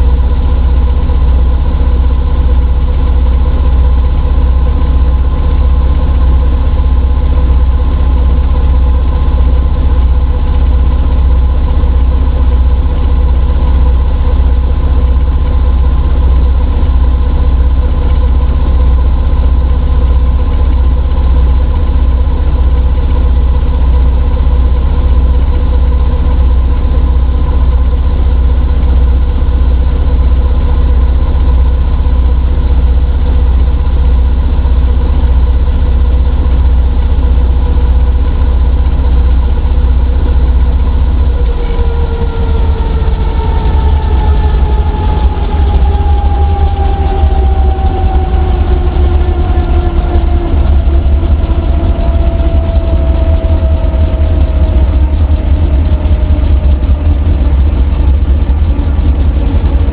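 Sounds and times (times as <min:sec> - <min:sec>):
helicopter engine and rotor: 0:00.0 - 0:59.9.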